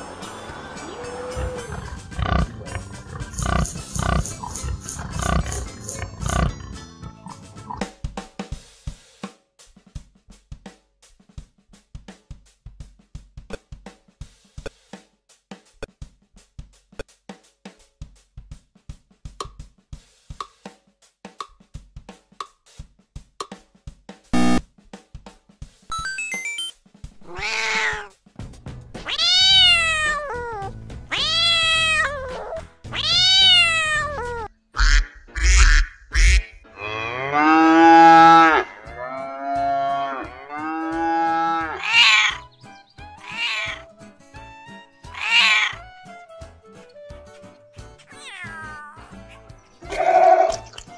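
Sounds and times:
cat meowing: 1.0s - 1.8s, 27.2s - 28.1s, 29.1s - 34.5s, 41.8s - 42.4s, 43.1s - 43.8s, 45.1s - 45.8s, 48.1s - 49.2s
countdown ticking: 24.4s - 24.6s.

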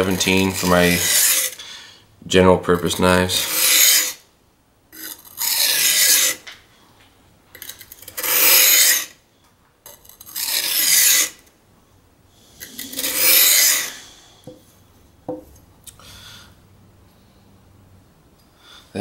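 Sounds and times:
knife grinding on whetstone: 0.0s - 1.6s, 3.4s - 4.2s, 5.0s - 6.4s, 7.6s - 9.2s, 9.9s - 11.4s, 12.6s - 14.1s.

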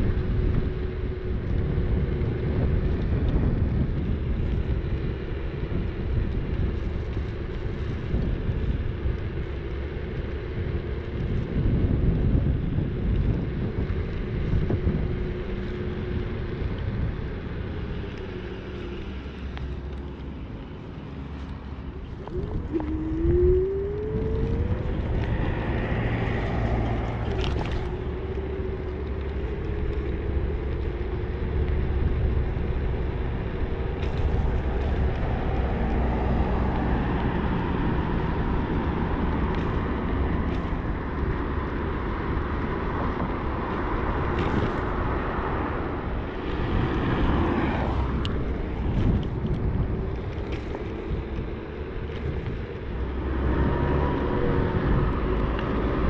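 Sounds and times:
sharp clicks from bumps: 0.0s - 56.0s
tyre rumble on pavement: 0.0s - 56.0s
wind over microphone: 0.0s - 56.0s
electric motor whine: 22.1s - 31.9s.

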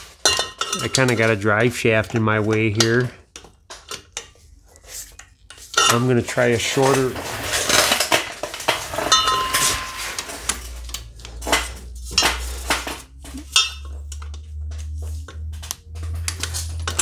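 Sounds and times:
metal tools clinking: 0.0s - 1.4s, 5.7s - 14.4s
low steady hum: 0.0s - 17.0s
ringing metallic clanks: 9.0s - 10.4s.

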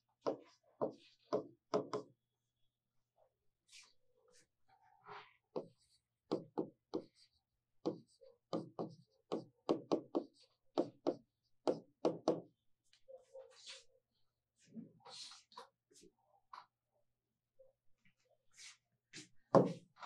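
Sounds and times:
chalk tapping on blackboard: 0.2s - 2.1s, 5.6s - 7.2s, 7.8s - 12.4s.

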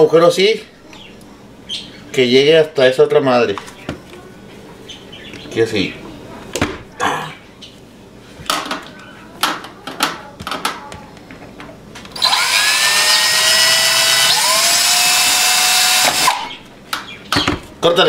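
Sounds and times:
small electric drill drilling brass: 12.2s - 16.6s.

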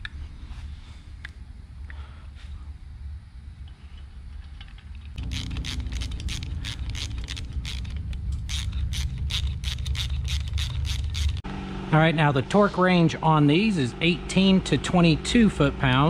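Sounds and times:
low steady hum: 0.0s - 16.0s
hand ratchet clicking: 5.1s - 11.4s.

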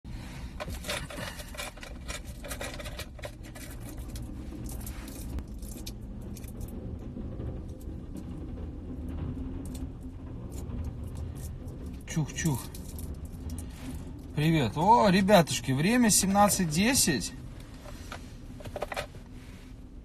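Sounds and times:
car low rumble: 0.0s - 20.0s
phone handling clicks and scrapes: 17.7s - 19.3s.

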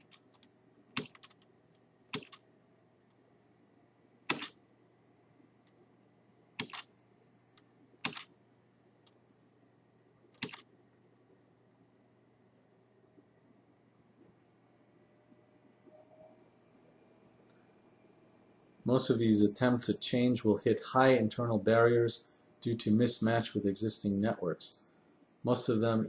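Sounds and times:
sharp clicks: 0.0s - 1.5s, 2.1s - 2.4s, 4.3s - 4.6s, 6.6s - 6.9s, 7.6s - 8.3s, 10.4s - 10.7s.

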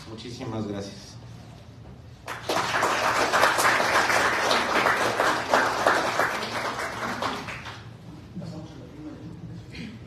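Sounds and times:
people applauding: 2.2s - 8.1s.

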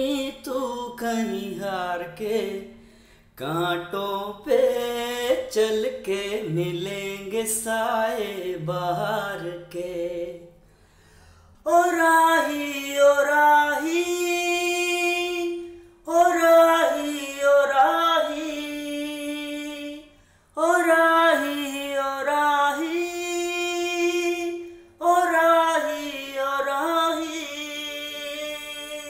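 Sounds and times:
person singing slowly: 11.7s - 29.0s.

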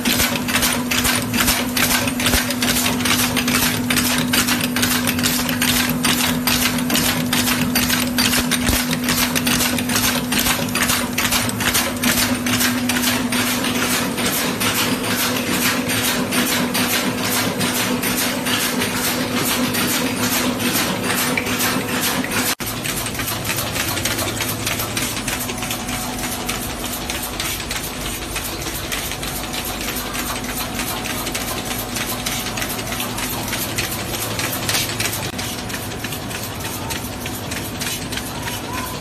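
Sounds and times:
machine humming: 0.0s - 39.0s.

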